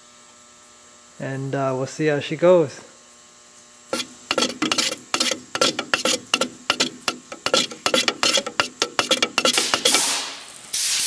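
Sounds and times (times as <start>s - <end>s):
stick stirring paint in can: 3.9s - 10.3s.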